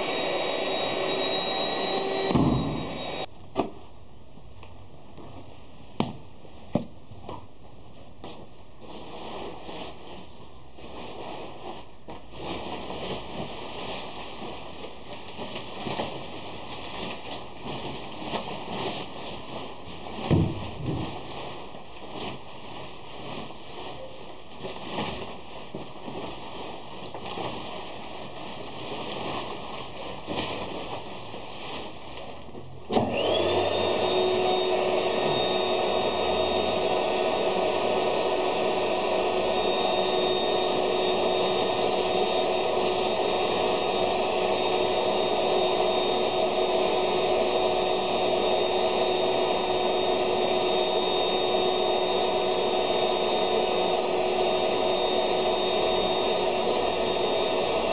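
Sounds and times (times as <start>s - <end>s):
electric blower whining: 0.0s - 3.3s, 32.9s - 57.9s
plastic sheeting rustling: 0.0s - 57.9s.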